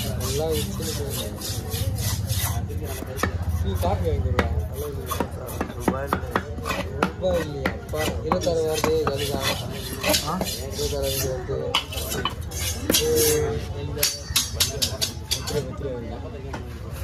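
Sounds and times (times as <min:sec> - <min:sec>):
knife chopping on wooden block: 0:00.0 - 0:03.6, 0:04.2 - 0:10.7.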